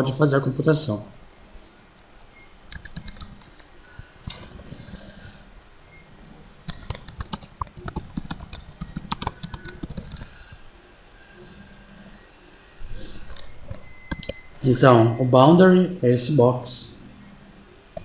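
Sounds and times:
typing on computer keyboard: 2.0 - 3.7, 4.3 - 5.4, 6.2 - 10.6, 13.2 - 14.4.

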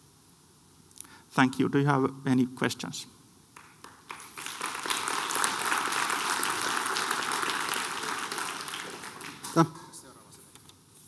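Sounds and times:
audience applauding: 3.6 - 9.8.

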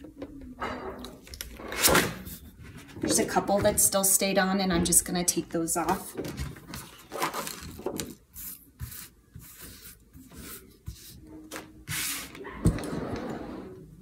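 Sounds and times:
paper rustling and rubbing: 6.7 - 12.4.

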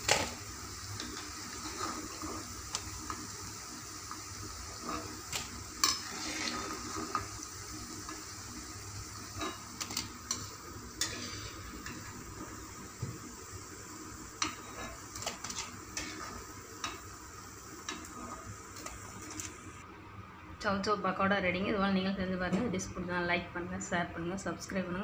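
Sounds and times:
fritters sizzling in hot oil: 0.0 - 19.8.

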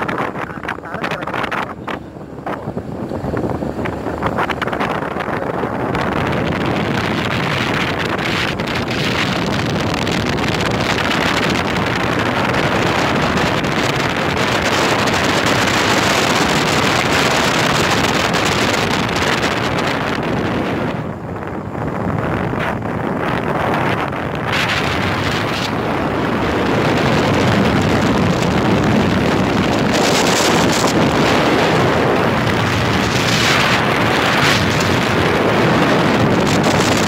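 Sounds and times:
wind rushing over microphone: 0.0 - 37.0.

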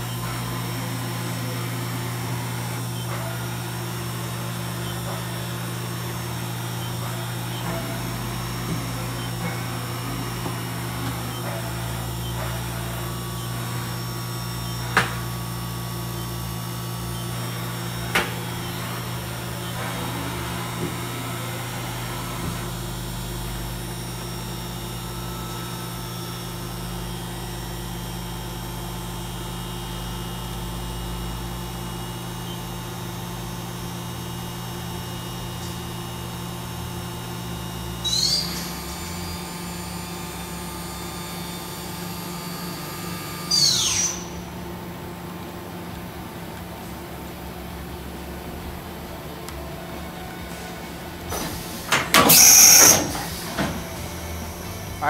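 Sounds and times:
machine electrical hum and whine: 0.0 - 55.0.

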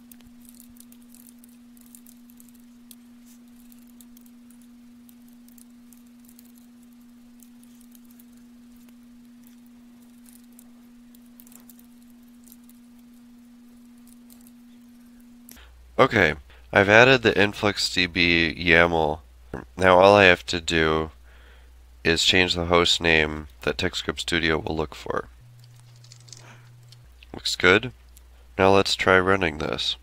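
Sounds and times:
steady hum: 0.0 - 30.0
keyboard typing: 25.5 - 27.1.

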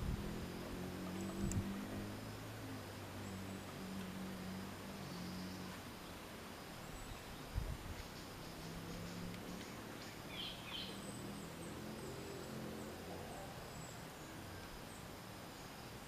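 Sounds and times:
background hiss: 0.0 - 16.0
faint bird chirps: 3.2 - 16.0.

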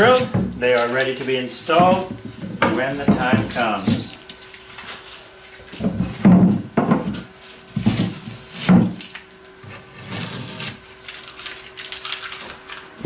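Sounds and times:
wood rubbing on wood: 0.0 - 4.2
wood knocking on wood: 1.7 - 4.1.

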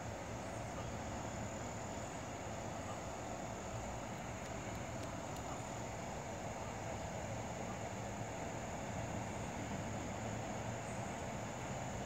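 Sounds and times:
constant high-pitched whine: 0.0 - 12.0
low even hum: 0.0 - 12.0
faint ticks: 4.2 - 5.6.

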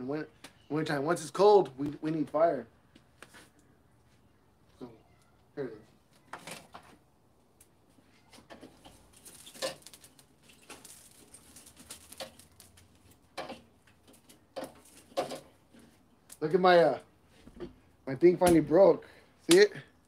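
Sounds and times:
metal tool scraping in fire bowl: 8.5 - 16.0.

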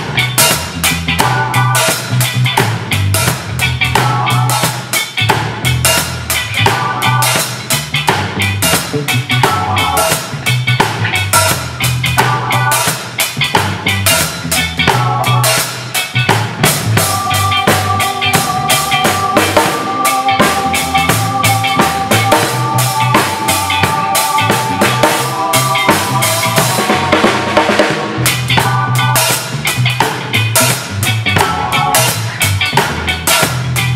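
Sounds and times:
backing track bass line: 0.0 - 33.9
drum kit playing a groove: 0.0 - 33.9
held chords: 16.6 - 33.9.

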